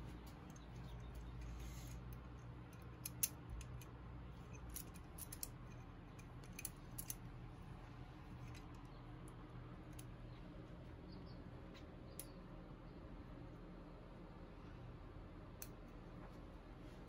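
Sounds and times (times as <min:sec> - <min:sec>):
metallic clamp clicks: 0:00.5 - 0:03.9, 0:04.5 - 0:07.2.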